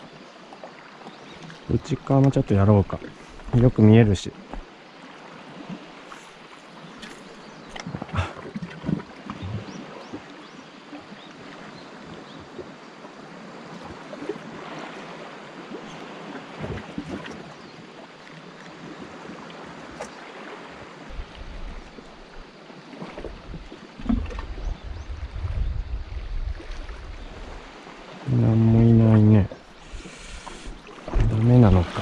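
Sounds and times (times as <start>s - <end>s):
small waves lapping on rocks: 26.4s - 32.0s.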